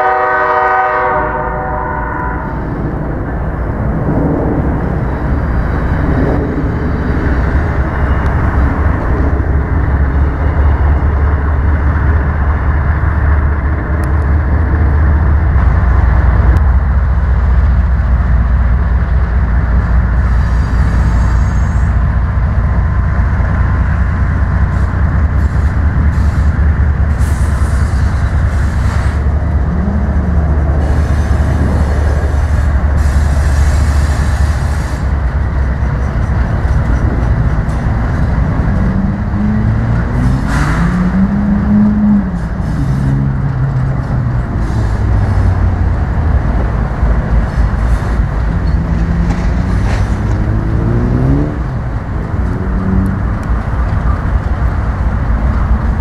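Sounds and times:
diesel locomotive rumbling: 0.0s - 56.0s.

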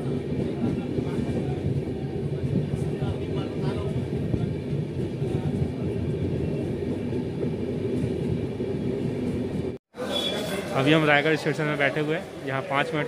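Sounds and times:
train wheels rumbling: 0.0s - 9.8s.

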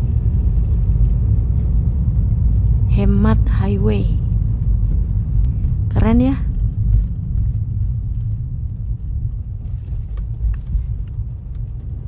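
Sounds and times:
car engine and road rumble: 0.0s - 12.0s.

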